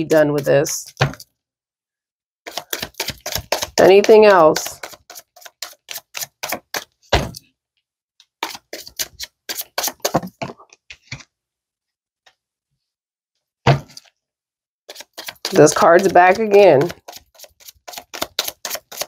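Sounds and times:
cards shuffling snaps: 17.9 - 19.0.

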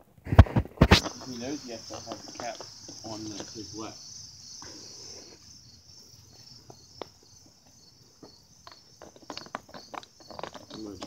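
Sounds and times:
insects chirring: 0.4 - 11.0.

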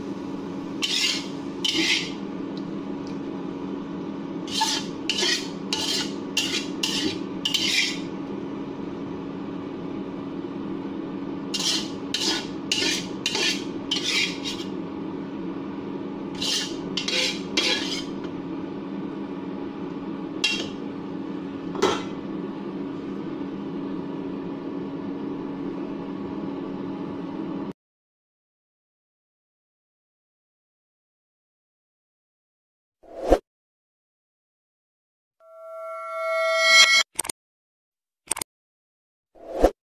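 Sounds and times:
spatula scraping a wok: 0.8 - 2.2, 4.4 - 8.1, 11.5 - 14.8, 16.3 - 18.2, 20.4 - 20.8.

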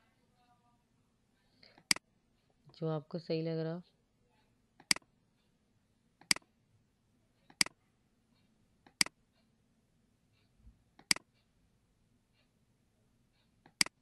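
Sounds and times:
computer mouse clicking: 4.8 - 5.0, 7.5 - 7.8, 11.0 - 11.3.

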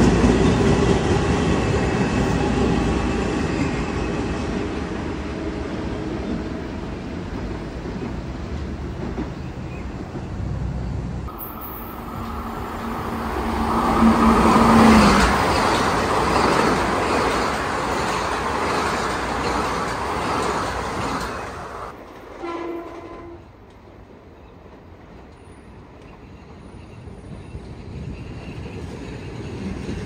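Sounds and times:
electric train whine: 0.0 - 22.0
wheel and rail noise: 0.0 - 30.0.

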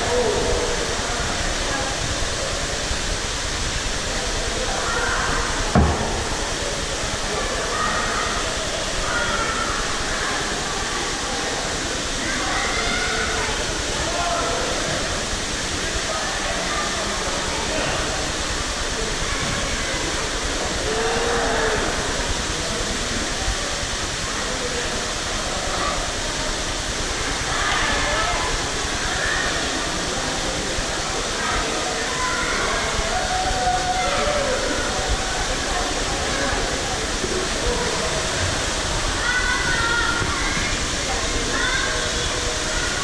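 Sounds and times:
crowd of bathers: 0.0 - 43.0
splashing and running water: 0.0 - 43.0
dull thump: 5.7 - 6.4.

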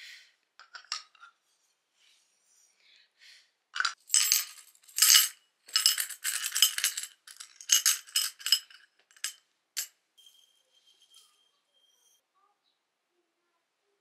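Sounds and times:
coins clinking in ceramic bowl: 3.8 - 12.2.

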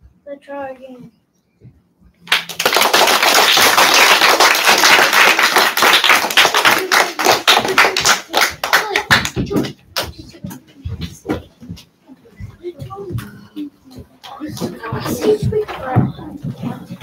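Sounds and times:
audience applause: 2.3 - 9.4.

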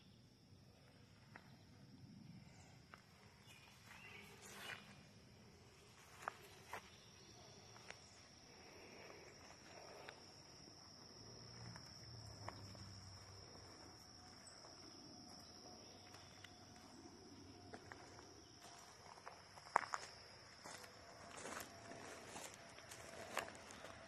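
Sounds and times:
high-pitched insect trill: 6.0 - 24.0.

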